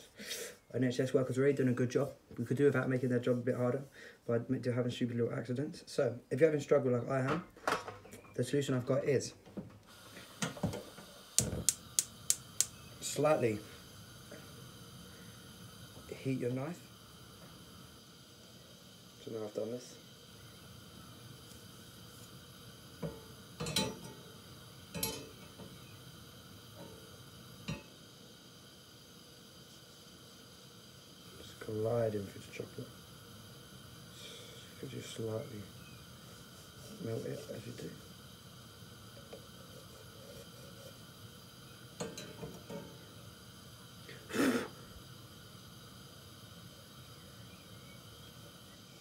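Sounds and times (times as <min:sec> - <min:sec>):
utensils clinking on worktop: 0:23.6 - 0:24.2
breath out through the nose: 0:44.1 - 0:44.8.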